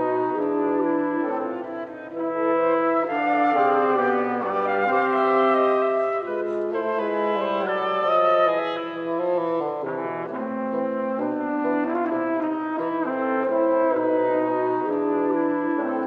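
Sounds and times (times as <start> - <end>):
woodwind quintet playing dance music: 0.0 - 16.0.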